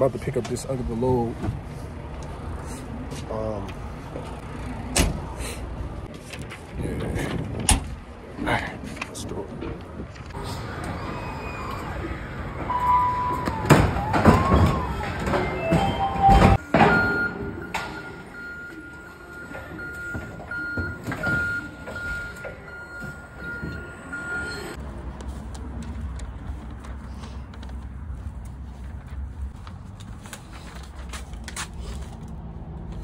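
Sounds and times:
brief squeals: 10.4s - 15.0s
high electronic alarm tone: 12.6s - 13.7s.

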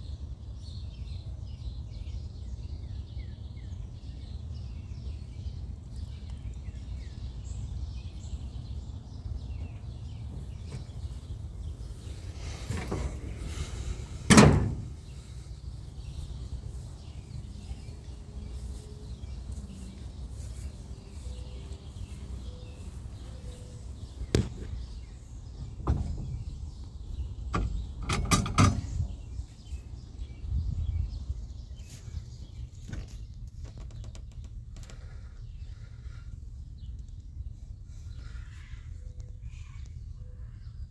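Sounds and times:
metal thump: 14.2s - 15.0s, 25.8s - 26.4s.

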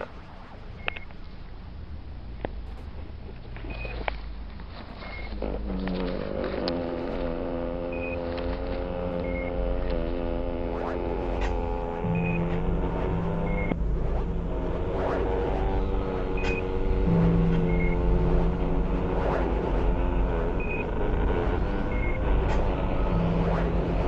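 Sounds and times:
low steady rumble: 0.0s - 24.0s
sustained electronic drone: 0.0s - 24.0s
scattered clicks: 0.8s - 1.2s.

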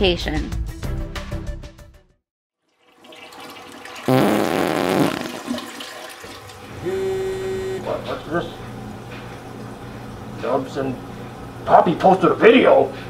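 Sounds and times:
loud wavering fart: 4.1s - 5.7s
steady held tone: 6.8s - 8.0s.

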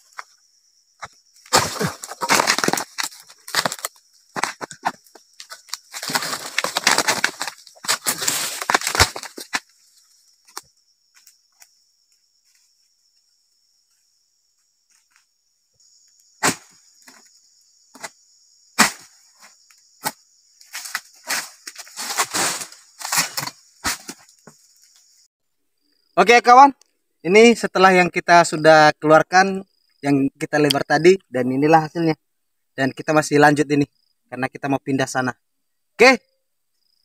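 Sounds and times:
high insect buzz: 0.0s - 26.2s
chisel blade chopping palm fronds: 16.4s - 17.2s, 18.8s - 19.1s.

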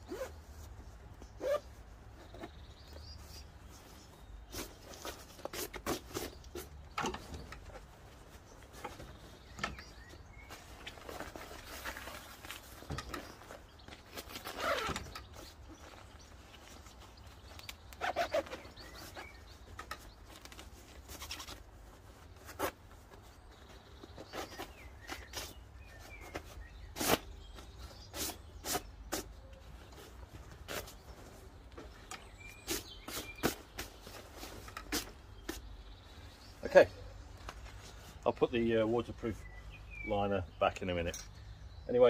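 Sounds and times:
zip scrapes: 0.0s - 0.5s, 1.4s - 1.7s, 14.2s - 15.1s, 18.0s - 19.3s
jacket fabric rustling: 0.0s - 36.5s.

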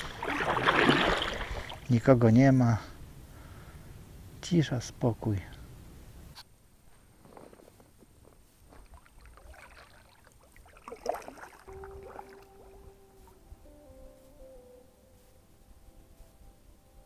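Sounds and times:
paddle splashing in water: 0.0s - 1.9s, 8.8s - 12.8s
soft long-held musical tones: 10.6s - 17.0s.

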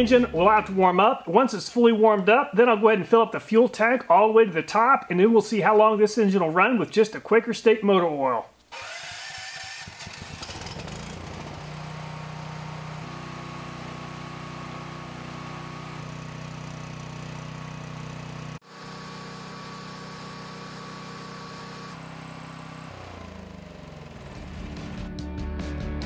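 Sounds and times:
generator engine starting and running: 0.0s - 1.0s, 8.7s - 25.3s.

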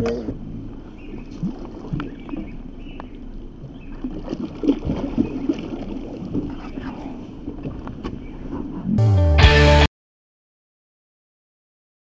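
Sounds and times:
water splashing beside boat: 0.0s - 8.9s.

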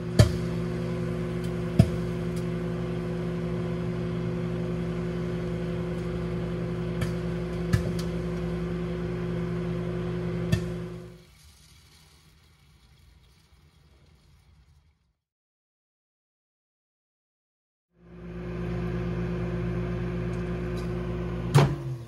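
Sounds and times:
microwave oven humming: 0.0s - 11.2s, 18.0s - 22.0s.

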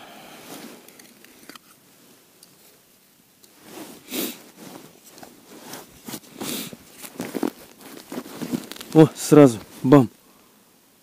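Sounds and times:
padded jacket rustling: 3.5s - 10.0s
plastic box handling: 5.1s - 9.1s.

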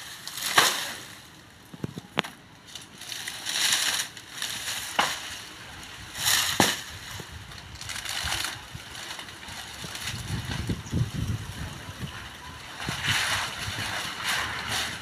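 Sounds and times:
fronds snapping: 0.0s - 5.6s, 6.2s - 10.8s
dry palm fronds rustling: 0.0s - 15.0s.

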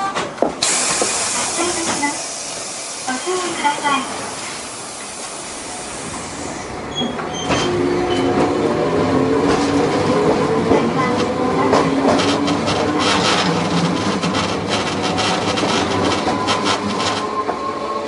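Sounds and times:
tram running noise: 0.0s - 18.0s
air hiss: 0.6s - 6.7s
wheels clicking on rails: 9.4s - 17.7s.

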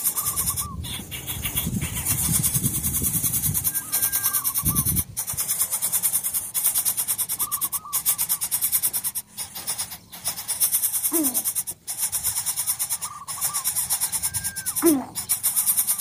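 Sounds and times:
falling bird cry: 0.0s - 16.0s
nestlings rasping: 0.0s - 16.0s
short bird calls: 0.0s - 16.0s.

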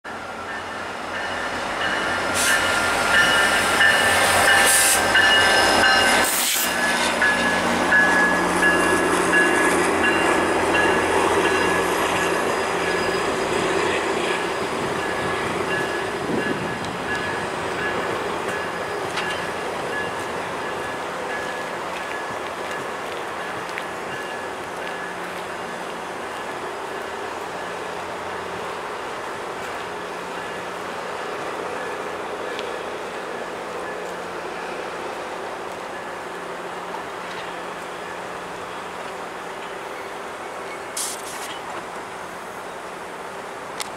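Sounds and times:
train rumbling past: 0.1s - 43.9s
train brakes squealing: 0.5s - 22.4s, 37.0s - 41.8s.

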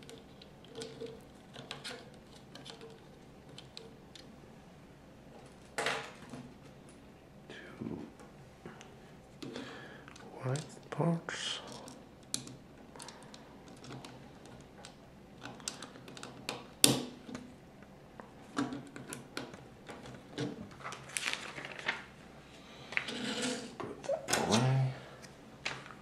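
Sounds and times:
pieces rattling and rustling: 0.0s - 4.0s.

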